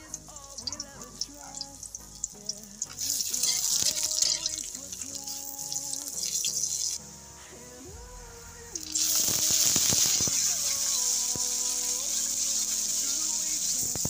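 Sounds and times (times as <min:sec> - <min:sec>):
garlic frying in oil: 0:00.0 - 0:07.0, 0:08.8 - 0:14.0
background music: 0:00.0 - 0:14.0
metal spatula stirring: 0:01.5 - 0:07.0
onions sizzling in hot oil: 0:01.5 - 0:07.0, 0:08.8 - 0:14.0.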